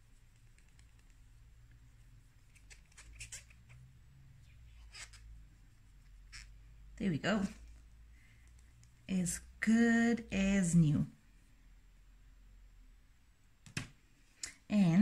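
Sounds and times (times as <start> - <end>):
low steady hum: 3.4 - 15.0.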